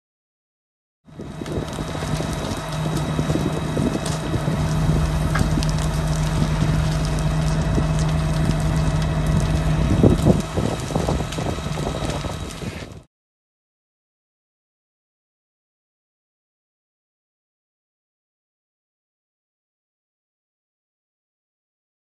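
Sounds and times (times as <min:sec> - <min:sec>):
fire crackling: 0:01.1 - 0:13.1
low engine hum: 0:01.1 - 0:13.1
wind buffeting microphone: 0:01.1 - 0:13.1.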